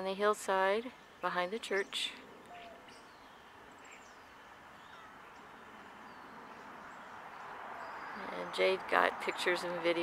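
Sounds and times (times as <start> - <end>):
low background hiss: 0.0 - 10.0
faint bird chirps: 1.7 - 8.4.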